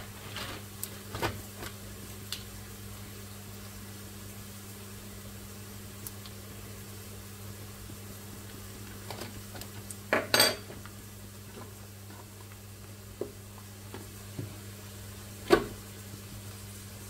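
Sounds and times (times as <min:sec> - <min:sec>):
utensils clinking against pot: 0:10.2 - 0:10.7.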